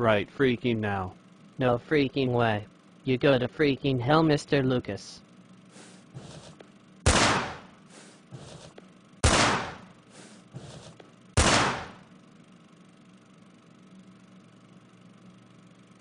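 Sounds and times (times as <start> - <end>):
gunshots with echo: 7.1 - 7.7, 9.2 - 9.9, 11.4 - 12.0.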